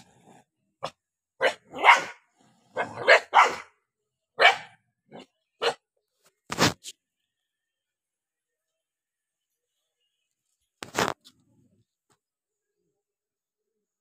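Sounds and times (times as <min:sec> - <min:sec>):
dog barking angrily: 0:00.8 - 0:03.8, 0:04.4 - 0:05.8.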